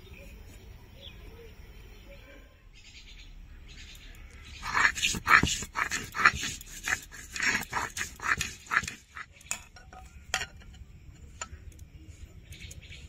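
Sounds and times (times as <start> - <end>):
high animal cries: 4.6 - 9.3.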